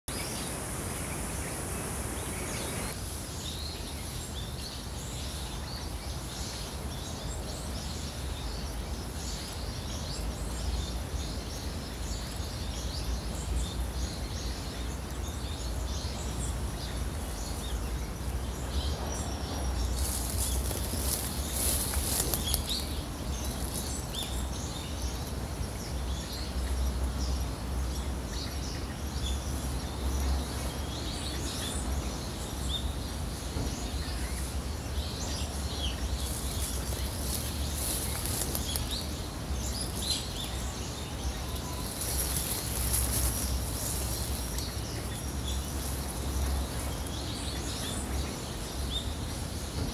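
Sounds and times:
small birds chirping: 0.0s - 49.9s
waterfall rushing over rocks: 0.1s - 3.1s
high hiss: 0.1s - 5.2s.

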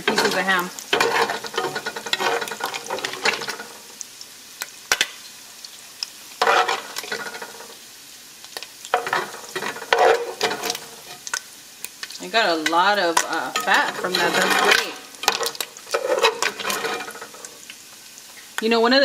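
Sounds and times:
utensil scraping a pot: 0.0s - 3.9s, 6.4s - 7.8s, 8.9s - 11.4s, 12.6s - 17.7s
meat sizzling in fat: 0.0s - 19.0s.

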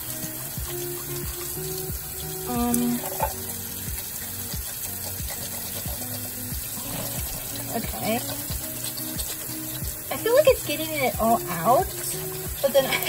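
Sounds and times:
soft background music: 0.0s - 13.0s
tap water running into sink: 0.0s - 13.0s.

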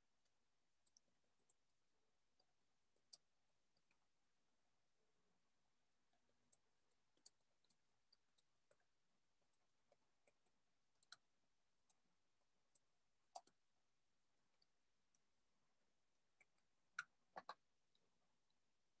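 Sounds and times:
faint small clicks: 6.2s - 12.0s, 12.7s - 13.6s, 16.3s - 18.6s.

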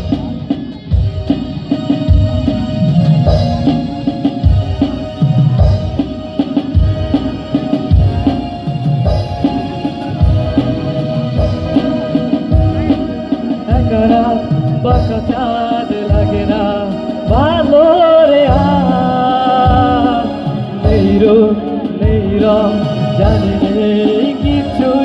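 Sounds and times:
live band playing: 0.0s - 25.0s
man singing: 10.1s - 25.0s.

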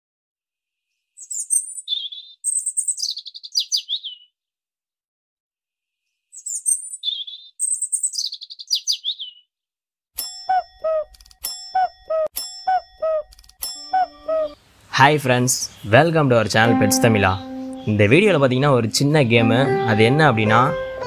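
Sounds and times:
bird chirping song: 0.8s - 4.4s, 6.0s - 9.5s, 10.3s - 14.6s, 15.4s - 21.0s.

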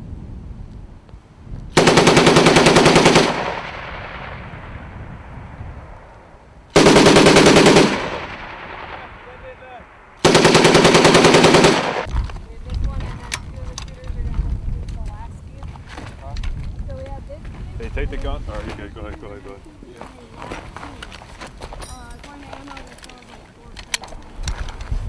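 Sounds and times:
machine gun firing bursts: 1.8s - 4.3s, 6.7s - 9.1s, 10.2s - 12.1s
gunfire echo: 1.8s - 12.1s.

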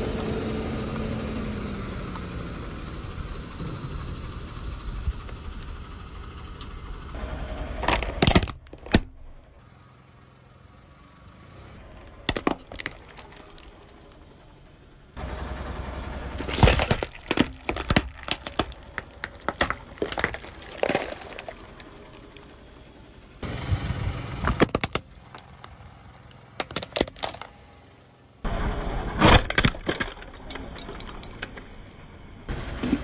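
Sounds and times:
car engine rumble: 0.0s - 33.0s
plastic cracking and snapping: 7.8s - 9.2s, 12.2s - 14.1s, 16.4s - 21.5s, 26.6s - 27.5s.

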